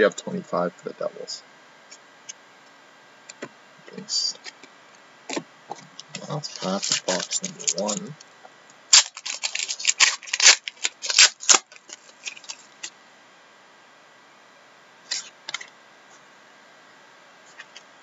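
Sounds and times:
foil wrapper tearing and crackling: 6.2 - 8.0, 8.9 - 12.9.

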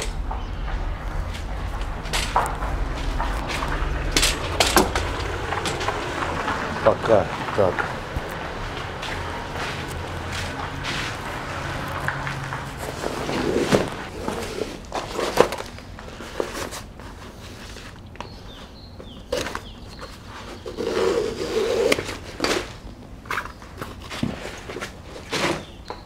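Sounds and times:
footsteps: 0.0 - 16.2
bag rustling and scraping on tarp: 8.4 - 17.9.

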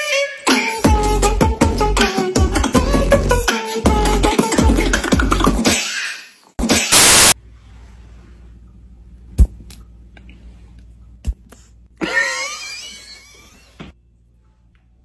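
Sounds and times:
loud hiss of noise: 6.9 - 7.4.

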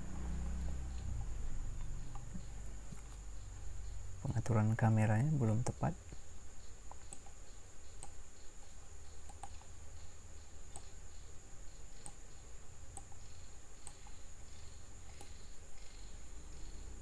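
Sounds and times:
faint high-pitched whine: 0.0 - 17.0
low hum: 0.0 - 17.0
computer mouse clicking: 1.2 - 3.2, 6.8 - 9.8, 10.7 - 11.0, 12.0 - 12.3, 12.9 - 14.2, 15.0 - 16.0.

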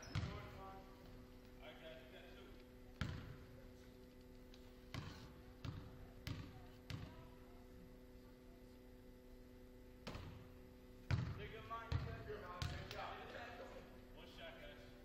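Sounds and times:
basketball bouncing on wooden floor: 0.0 - 0.5, 3.0 - 3.4, 4.9 - 7.2, 11.1 - 13.0.

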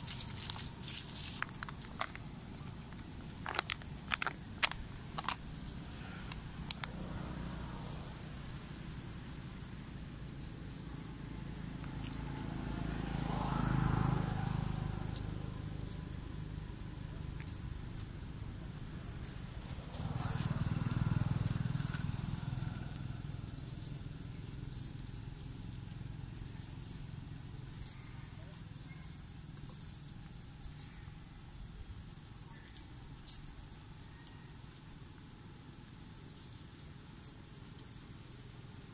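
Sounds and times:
high insect drone: 0.0 - 38.9
monkey crunching ice cubes: 2.9 - 5.4
motor vehicle passing: 5.8 - 9.6, 10.2 - 28.8.

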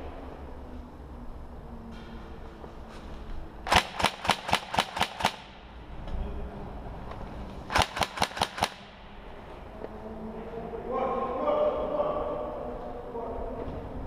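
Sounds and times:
airsoft rifle shots: 3.6 - 5.8, 7.7 - 9.4.

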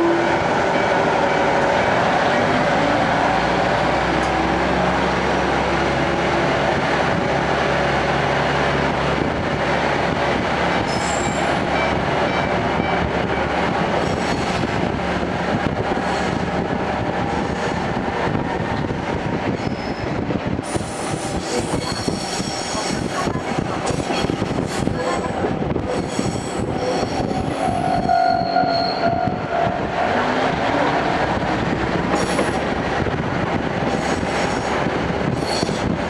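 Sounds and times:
railcar engine drone: 0.0 - 36.0
train running noise on rails: 0.0 - 36.0
high-pitched wheel squeal: 25.9 - 30.5.

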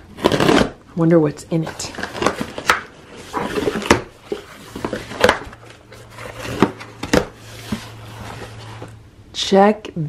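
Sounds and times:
cardboard rustling: 0.0 - 0.8, 1.6 - 9.0
packing tape ripping: 0.0 - 0.8
cardboard flaps scraping and knocking: 2.0 - 8.9.

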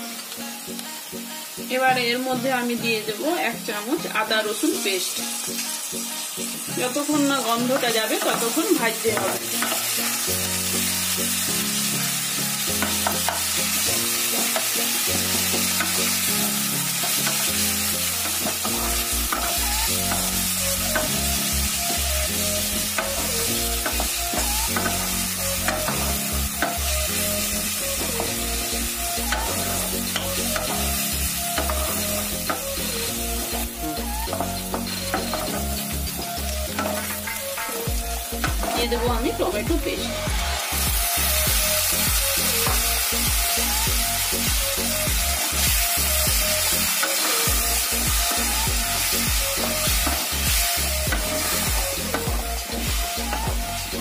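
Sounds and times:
onions sizzling in hot oil: 0.0 - 54.0
spatula scraping and tapping pan: 9.1 - 9.9, 18.3 - 20.3, 36.7 - 38.8.

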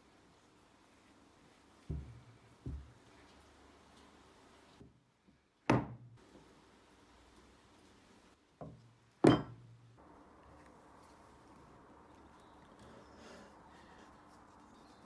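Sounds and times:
metal knocking on wooden bench: 8.6 - 9.6.

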